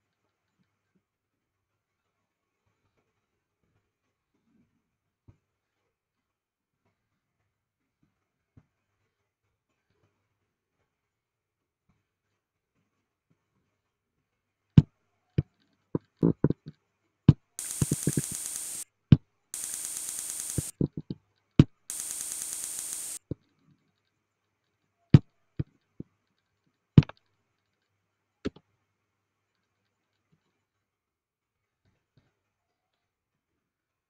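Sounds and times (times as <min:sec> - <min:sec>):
computer mouse clicking: 0:17.6 - 0:18.8, 0:19.6 - 0:21.0, 0:21.9 - 0:23.2
high hissing whir: 0:17.6 - 0:18.8, 0:19.6 - 0:20.8, 0:21.9 - 0:23.2.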